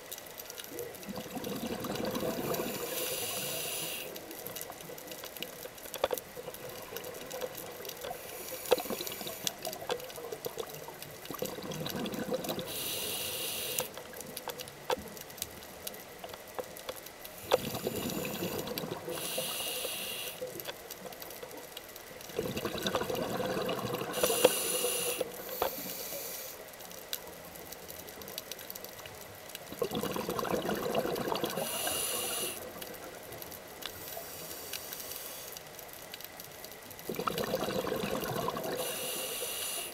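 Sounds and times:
rush of bubbles with hiss: 1.0s - 4.4s, 6.4s - 13.9s, 17.4s - 20.6s, 22.3s - 26.6s, 29.7s - 33.1s, 37.1s - 39.9s
diver breathing through regulator: 2.2s - 4.2s, 12.7s - 13.9s, 17.5s - 20.4s, 24.0s - 26.6s, 31.5s - 32.6s, 38.6s - 39.9s.

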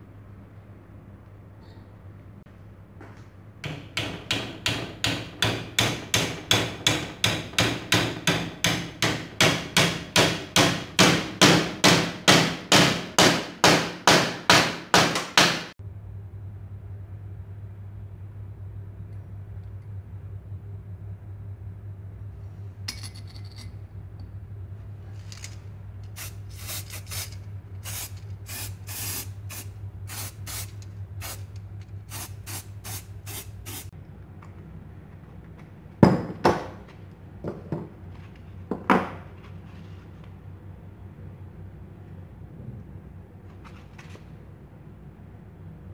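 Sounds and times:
spray paint can hissing: 26.1s - 31.5s, 32.1s - 33.9s.

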